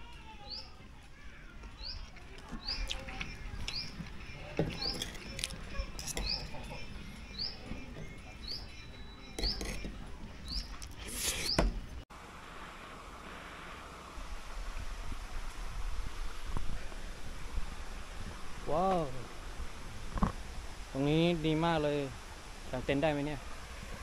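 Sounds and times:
bird chirping: 0:01.7 - 0:11.7.

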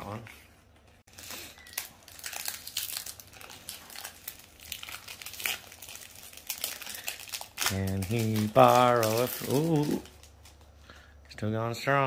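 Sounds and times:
foil wrapper crinkling and tearing: 0:01.1 - 0:10.6.

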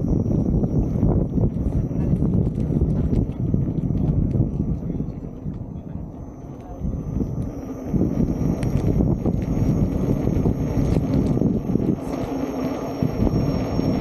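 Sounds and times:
tyres rolling over rough asphalt: 0:00.0 - 0:14.0
wind noise on microphone: 0:00.0 - 0:14.0
small clicks: 0:08.4 - 0:12.4.

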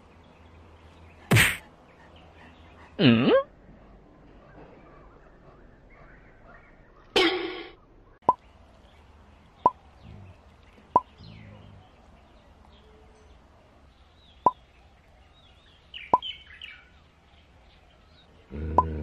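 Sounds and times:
faint birds chirping: 0:00.0 - 0:19.0
sharp pop sound effects: 0:01.3 - 0:01.6.

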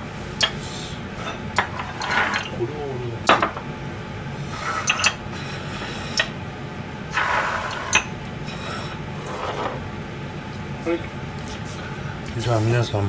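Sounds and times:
dish scraping on counter: 0:01.2 - 0:02.5, 0:04.5 - 0:06.3, 0:07.1 - 0:09.9
dishes clinking on steel counter: 0:01.3 - 0:02.5, 0:04.8 - 0:05.2.

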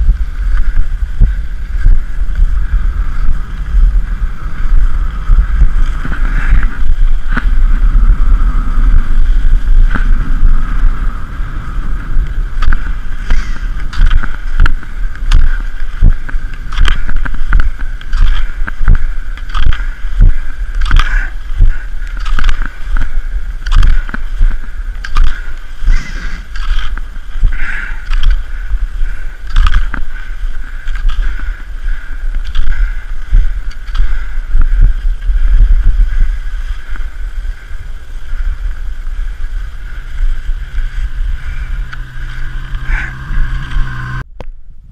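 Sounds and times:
wind rumble on microphone: 0:00.0 - 0:44.9
skis hissing over snow: 0:25.8 - 0:29.4.

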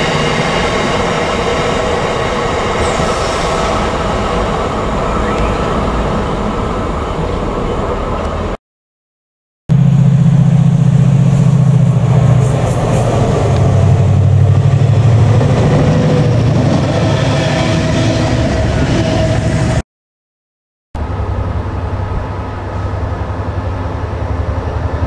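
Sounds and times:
diesel locomotives passing: 0:00.0 - 0:08.6, 0:09.7 - 0:19.8, 0:21.0 - 0:25.0.

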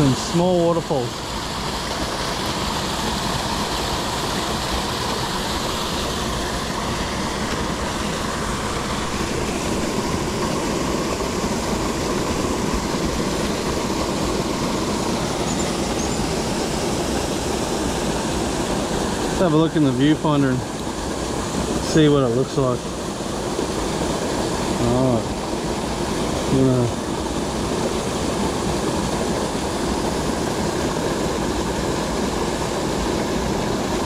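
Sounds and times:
water rushing over waterfalls: 0:00.0 - 0:34.0.

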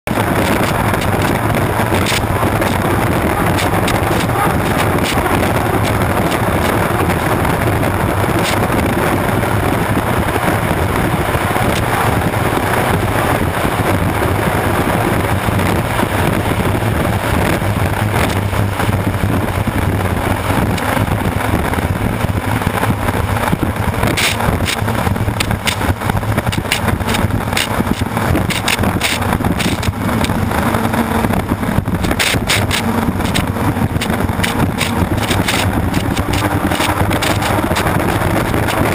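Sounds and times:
boat turbine engine running: 0:00.0 - 0:38.9
wind buffeting: 0:00.0 - 0:38.9
water spray on hull: 0:24.0 - 0:30.3, 0:31.3 - 0:38.9.

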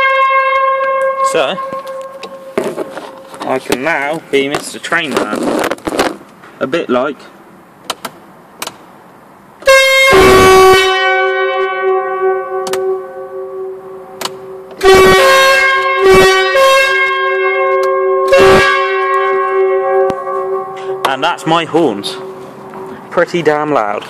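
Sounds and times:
truck air horns blasting: 0:00.0 - 0:04.2, 0:09.6 - 0:23.2.

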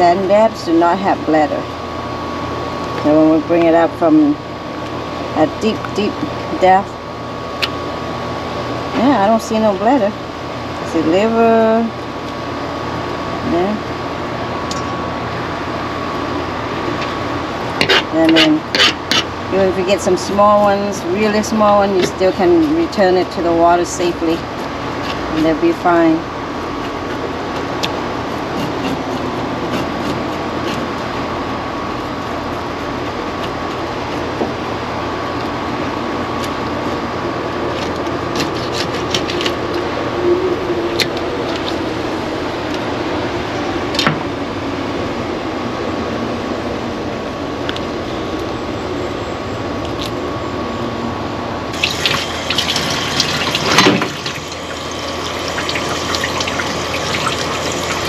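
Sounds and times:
faint hum: 0:00.0 - 0:58.0
tap water splashing: 0:51.8 - 0:58.0.

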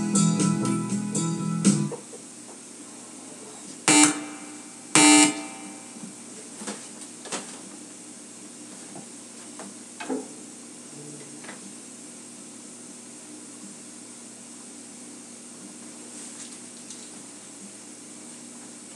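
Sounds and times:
low amplifier hum: 0:00.0 - 0:18.9
electric guitar chord stabs: 0:03.9 - 0:06.0.

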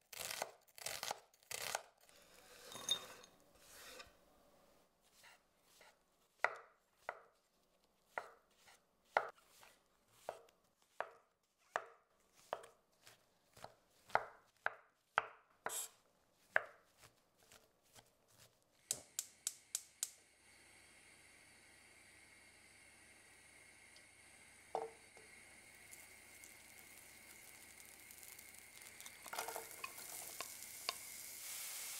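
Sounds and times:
knife chopping on wooden board: 0:08.1 - 0:15.9, 0:16.5 - 0:18.5
steady hiss: 0:18.9 - 0:31.9.

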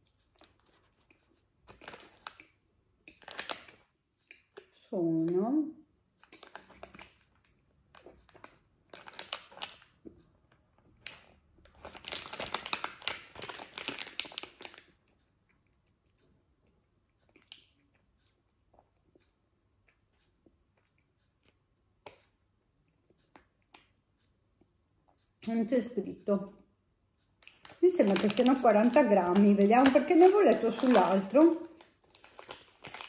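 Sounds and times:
plastic wrapper crinkling: 0:00.0 - 0:03.9, 0:06.2 - 0:09.9, 0:11.0 - 0:15.0, 0:27.4 - 0:33.0.

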